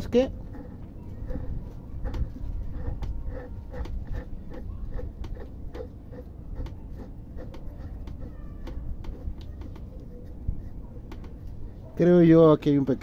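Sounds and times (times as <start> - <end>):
low rumble of handling noise: 0.0 - 13.0.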